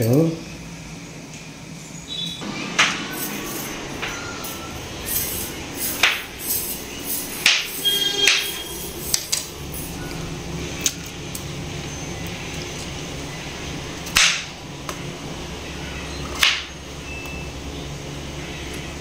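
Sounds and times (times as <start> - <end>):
metal pots and utensils clattering: 2.8 - 10.0.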